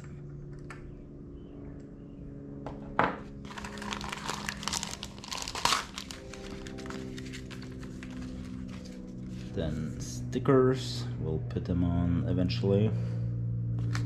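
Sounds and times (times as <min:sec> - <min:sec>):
plastic bags crinkling: 0:03.4 - 0:08.6.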